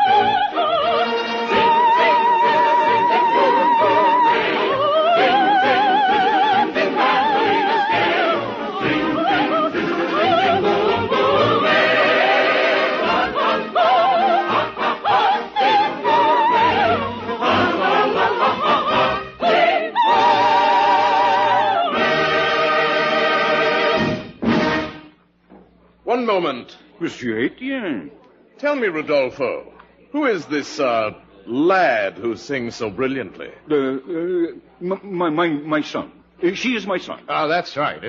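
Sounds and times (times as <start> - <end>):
soprano singing opera: 0.0 - 23.8
orchestra playing: 0.0 - 25.2.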